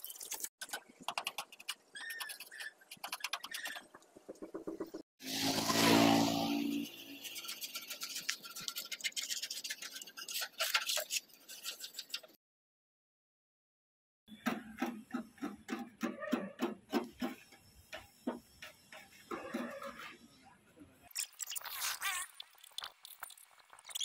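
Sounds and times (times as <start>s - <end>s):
scratchy sanding strokes on metal: 5.2s - 12.3s.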